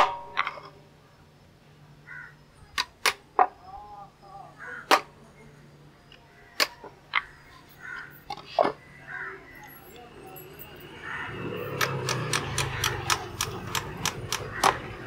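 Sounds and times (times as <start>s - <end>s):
hand tool taps and clicks: 11.8s - 14.8s.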